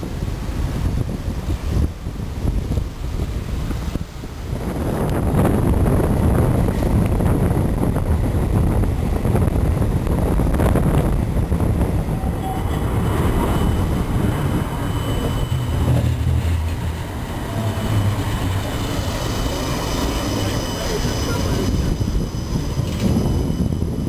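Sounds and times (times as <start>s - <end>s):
tram wheels rumbling on rails: 0.0s - 24.0s
faint high steady tone: 11.8s - 24.0s.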